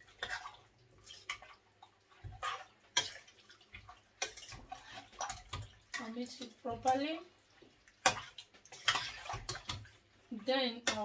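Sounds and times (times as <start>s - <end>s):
metal spoon scraping a pot: 0.0s - 1.6s, 2.2s - 3.4s, 4.2s - 7.0s, 8.0s - 9.9s.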